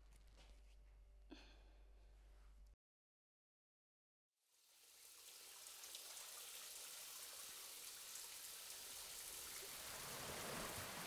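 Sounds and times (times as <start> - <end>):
rain falling: 4.7 - 11.0.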